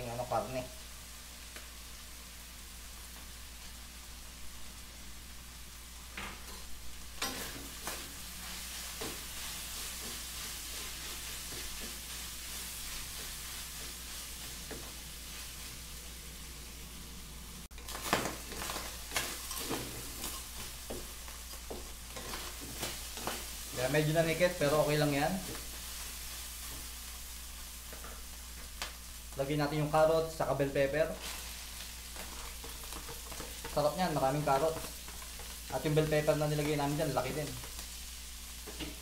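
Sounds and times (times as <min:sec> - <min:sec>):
meat sizzling in a wok: 0:00.0 - 0:39.0
wooden spatula scraping wok: 0:07.2 - 0:15.9, 0:17.7 - 0:27.0, 0:31.0 - 0:37.9.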